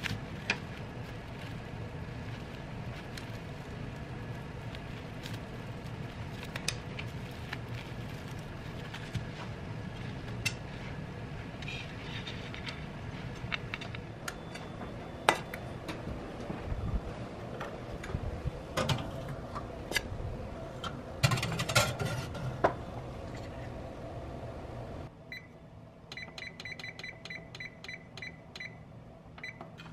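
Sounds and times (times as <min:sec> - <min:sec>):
metal plate clattering on oven rack: 0:21.2 - 0:22.6.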